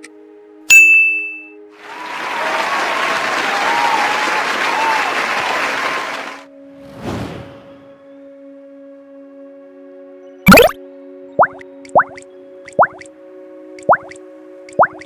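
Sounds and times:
bright ding: 0.7 - 1.6
crowd applause: 1.8 - 6.5.

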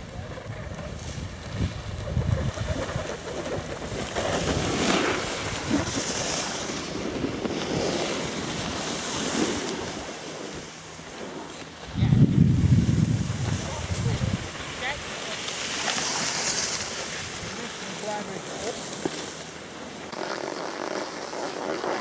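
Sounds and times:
wind buffeting microphone: 0.0 - 8.8, 11.8 - 15.2
skis scraping over snow: 0.0 - 22.0.

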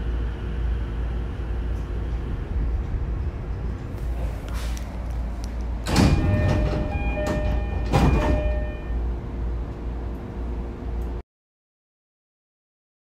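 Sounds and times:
low hum of standing train: 0.0 - 11.2
air hiss of train doors: 3.9 - 6.4
door chime: 5.9 - 9.0.

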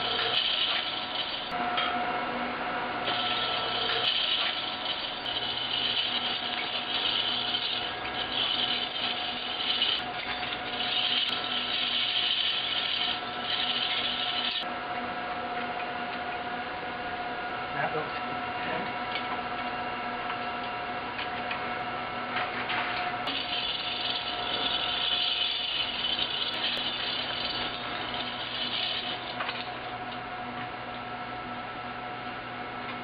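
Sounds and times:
steady hum: 0.0 - 33.0
chain hoist rasping: 23.3 - 29.4.

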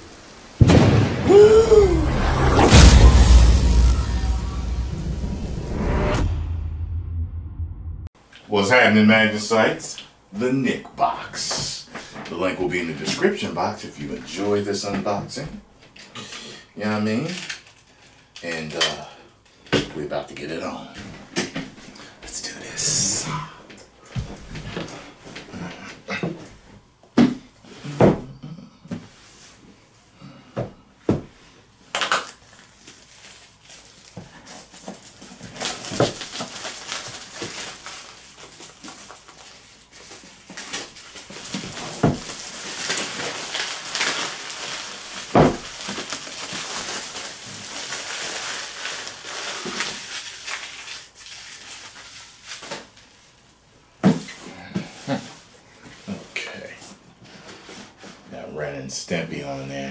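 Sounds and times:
shrink-wrap tearing and crinkling: 32.0 - 53.4.

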